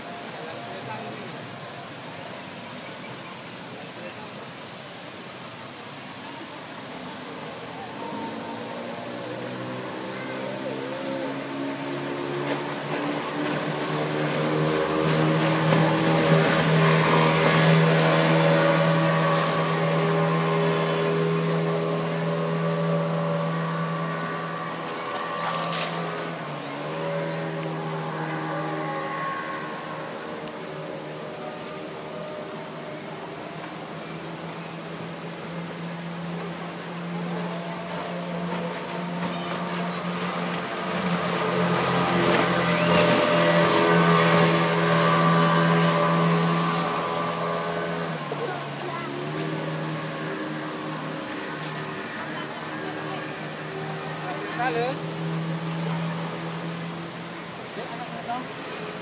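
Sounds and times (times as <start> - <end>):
speedboat engine humming: 0.0 - 59.0
outboard motor running: 5.4 - 59.0.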